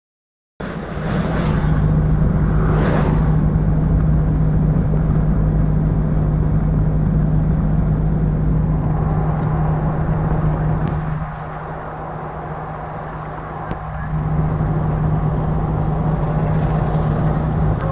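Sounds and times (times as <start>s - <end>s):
passing vehicle whooshes: 0.6s - 5.8s, 7.4s - 17.9s
cabin road hum: 0.6s - 17.9s.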